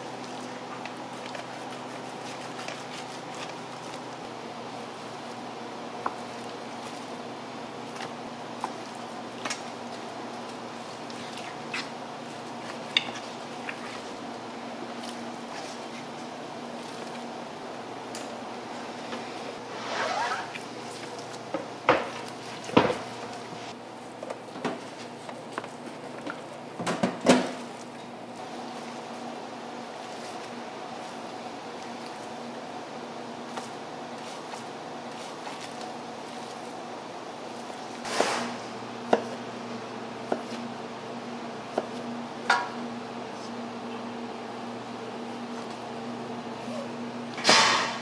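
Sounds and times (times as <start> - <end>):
steady background hum: 0.0 - 48.0
utensil scrape: 19.6 - 20.6, 38.0 - 38.7.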